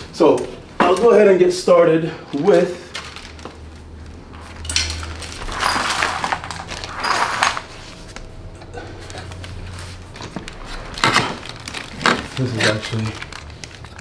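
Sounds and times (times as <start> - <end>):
steady low hum: 0.0 - 14.0
packaging rustling: 2.8 - 8.4, 9.0 - 14.0.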